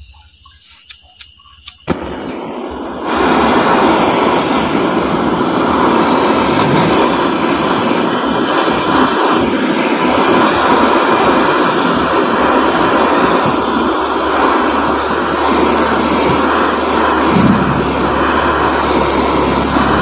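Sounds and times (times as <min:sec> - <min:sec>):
gas torch flame hissing: 0:00.0 - 0:20.0
torch igniter clicks: 0:00.4 - 0:02.8.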